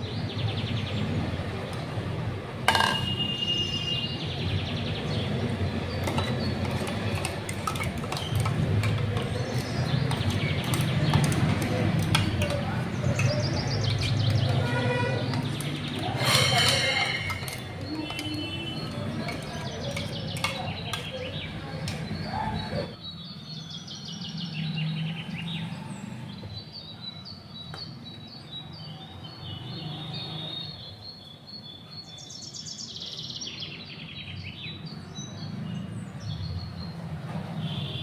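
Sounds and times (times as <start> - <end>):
birds chirping: 2.7 - 38.0
spoon scraping steel jar: 6.0 - 21.0.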